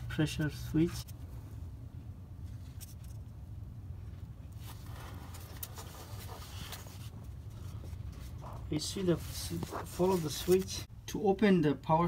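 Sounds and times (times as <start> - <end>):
steady low hum: 0.0 - 12.0
light scraping and rustling: 4.5 - 10.9.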